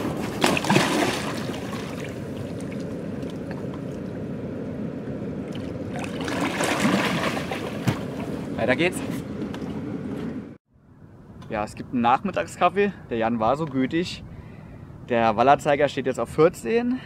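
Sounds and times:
fish splashing in water: 0.0 - 3.6, 5.5 - 8.3
steady low water rush: 0.0 - 9.0.

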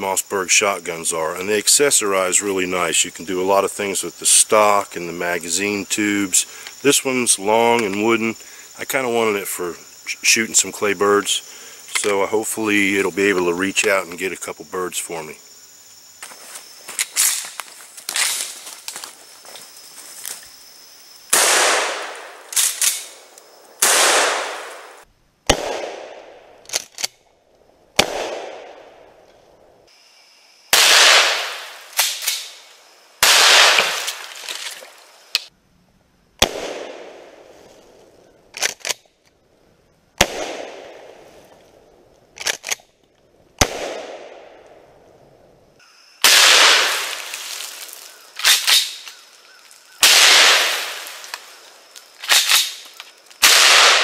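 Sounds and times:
shotgun blasts echoing: 21.3 - 23.1, 23.8 - 26.5, 28.0 - 29.0, 30.8 - 32.6, 33.2 - 34.1, 36.4 - 37.3, 40.2 - 41.2, 43.6 - 44.6, 46.2 - 47.2, 50.0 - 51.2, 53.4 - 54.0.

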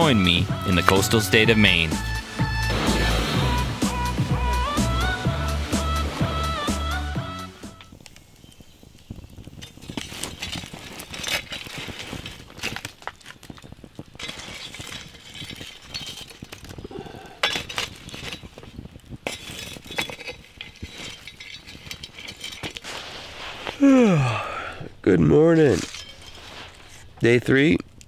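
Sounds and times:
campfire crackling: 0.0 - 28.0
shovel clinking among stones: 9.6 - 13.4, 14.2 - 16.8, 17.4 - 22.9, 25.6 - 27.0.

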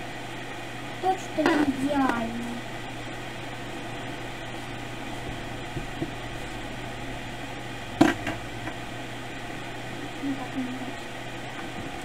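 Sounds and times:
low hum and hiss: 0.0 - 12.0
sharp knock: 8.0 - 8.4.

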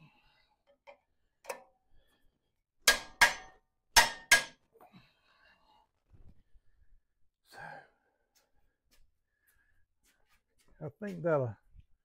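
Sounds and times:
metal-on-metal clanks: 2.8 - 4.6.

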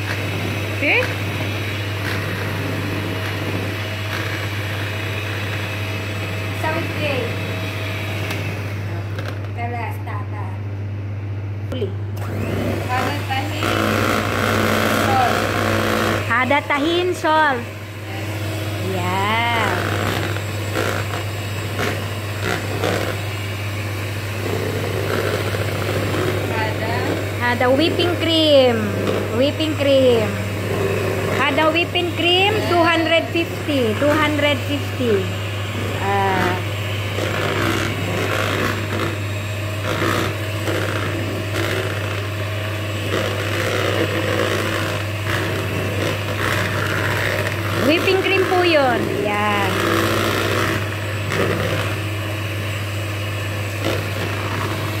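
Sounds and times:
electric hand mixer whirring: 0.0 - 10.3, 10.9 - 55.0.

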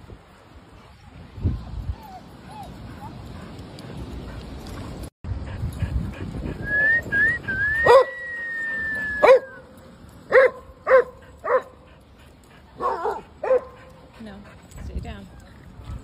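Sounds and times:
dog barking: 7.9 - 8.1, 9.2 - 9.5, 10.3 - 11.8, 12.8 - 13.8.

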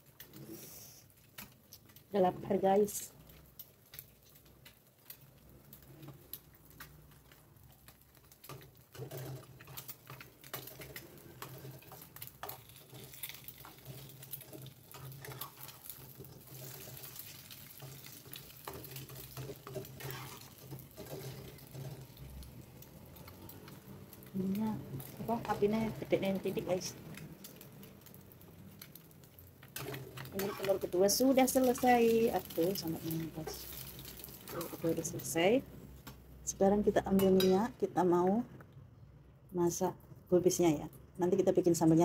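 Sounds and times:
egg sizzling in a pan: 0.0 - 37.6
metal spatula scraping a pan: 8.4 - 22.3, 29.8 - 31.8.

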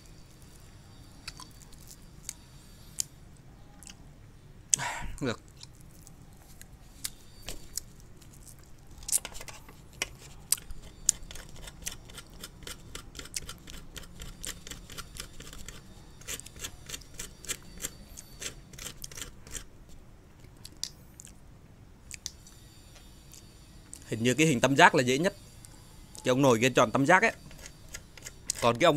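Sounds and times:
needle scraping sugar candy: 0.0 - 3.2, 5.5 - 19.7, 26.2 - 28.9.

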